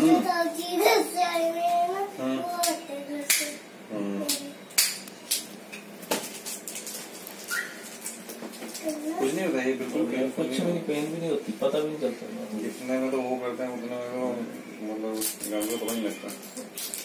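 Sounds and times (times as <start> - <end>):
girl talking sing-song: 0.0 - 3.7.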